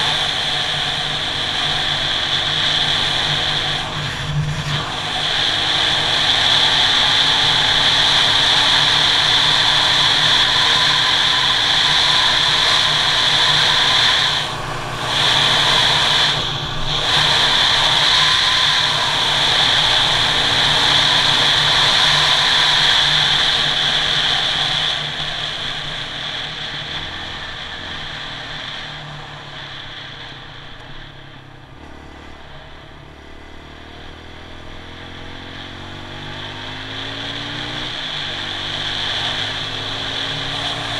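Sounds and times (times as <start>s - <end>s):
rushing noise: 0.0s - 33.2s, 34.4s - 40.9s
dirt bike engine running: 0.0s - 40.9s.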